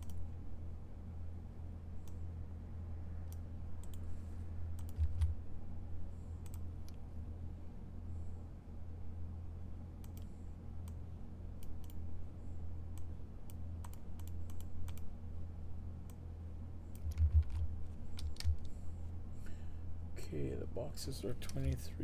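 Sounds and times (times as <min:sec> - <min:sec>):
steady low hum: 0:00.0 - 0:22.0
computer keyboard typing: 0:04.8 - 0:05.4, 0:16.9 - 0:18.7.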